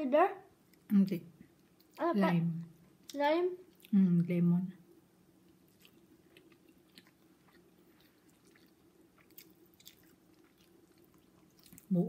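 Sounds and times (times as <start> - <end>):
low steady hum: 0.0 - 12.0
chewing and eating sounds: 3.0 - 4.0, 5.4 - 12.0.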